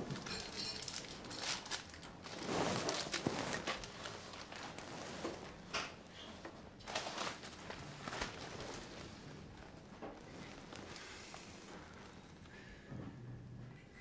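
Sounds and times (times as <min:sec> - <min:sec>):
newspaper rustling: 0:00.0 - 0:05.7, 0:06.8 - 0:12.3
paper rustling: 0:00.2 - 0:05.9, 0:06.8 - 0:12.3.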